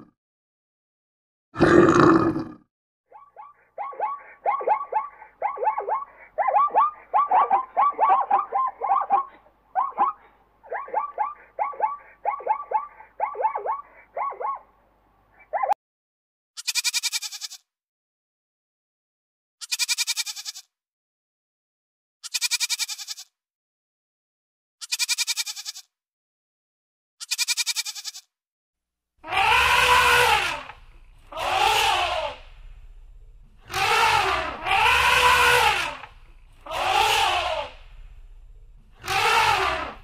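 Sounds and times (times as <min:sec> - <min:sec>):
goat bleating: 0:16.6 - 0:17.6, 0:19.6 - 0:20.7, 0:22.2 - 0:23.3, 0:24.8 - 0:25.9, 0:27.2 - 0:28.3, 0:29.2 - 0:40.0
elephant trumpeting: 0:29.2 - 0:40.0.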